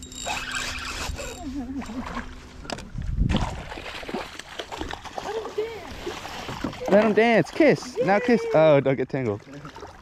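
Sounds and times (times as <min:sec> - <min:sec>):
spinning reel cranking: 0:00.0 - 0:01.5
fish thrashing and splashing: 0:03.3 - 0:07.9.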